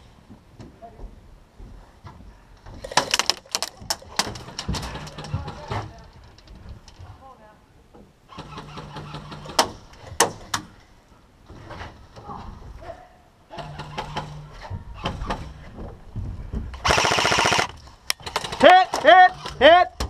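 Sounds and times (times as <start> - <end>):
airsoft rifle full-auto burst: 16.8 - 18.7.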